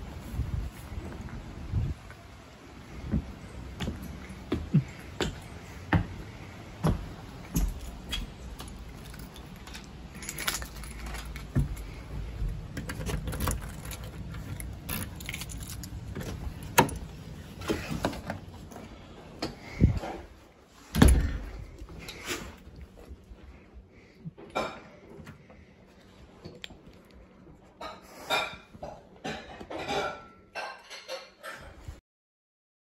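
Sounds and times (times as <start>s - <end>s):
footsteps on a porch: 0.0s - 23.7s
keys jangling: 7.7s - 11.9s, 12.8s - 17.1s.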